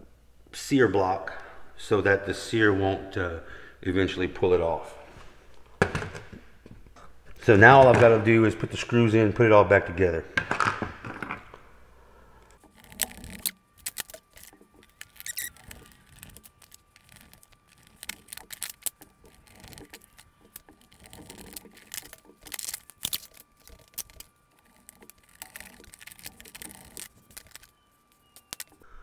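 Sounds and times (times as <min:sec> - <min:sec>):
screwdriver clicking on plastic: 0:12.6 - 0:28.8.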